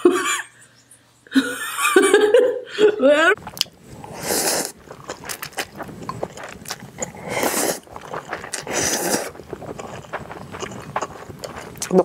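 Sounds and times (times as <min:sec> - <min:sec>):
soft chewing and mouth clicks: 0:03.4 - 0:12.0
noodle slurps: 0:03.5 - 0:12.0.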